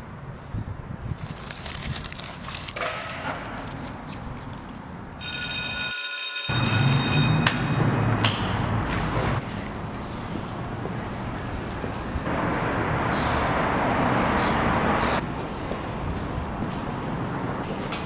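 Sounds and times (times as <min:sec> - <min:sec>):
electric bell ringing: 0:05.2 - 0:08.7.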